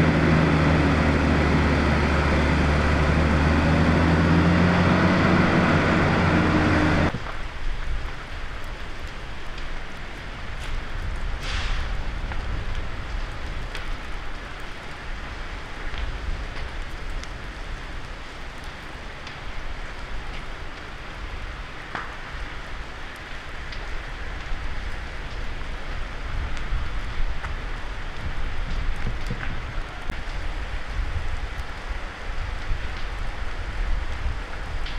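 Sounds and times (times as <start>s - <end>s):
low rumble: 0.0s - 7.4s
fire crackling: 0.0s - 34.9s
sharp pops of fire: 7.1s - 34.9s.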